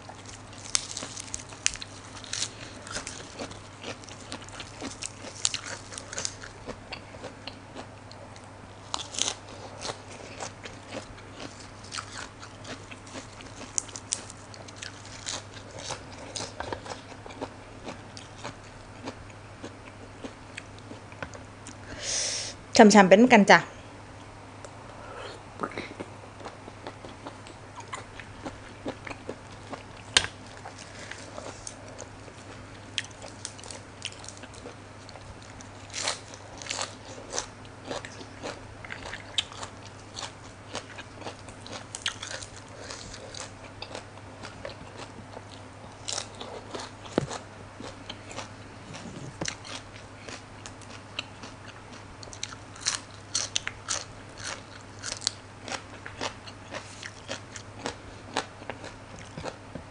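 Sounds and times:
chewing: 0:00.0 - 0:21.8, 0:25.6 - 0:59.6
crunching raw vegetables: 0:00.0 - 0:21.8, 0:25.9 - 0:59.8.

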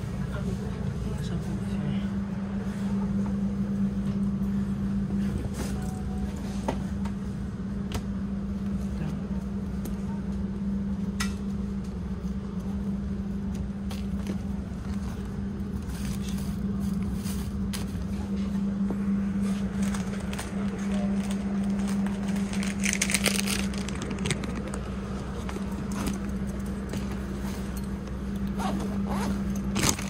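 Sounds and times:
train carriage hum and rumble: 0:00.0 - 0:30.0
wallet clicks and rustles: 0:19.7 - 0:26.5.

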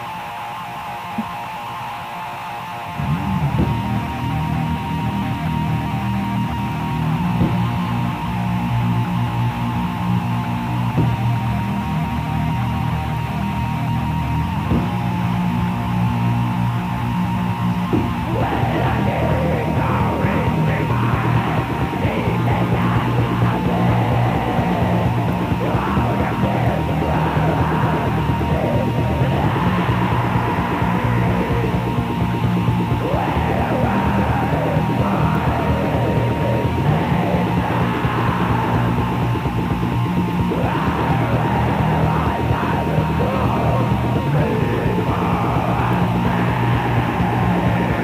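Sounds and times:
black metal band playing: 0:00.0 - 0:48.0
harsh yelled vocals: 0:17.8 - 0:48.0.

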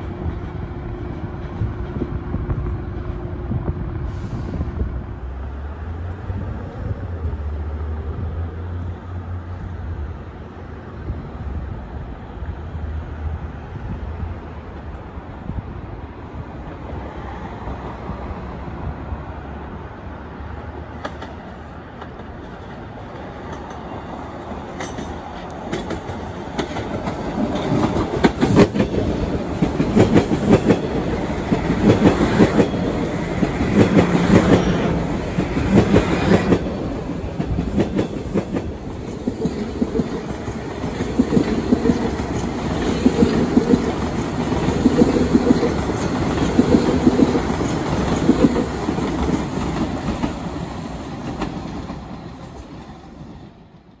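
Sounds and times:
subway train hum: 0:00.0 - 0:54.0
wheels clicking over rail joints: 0:22.0 - 0:52.7.

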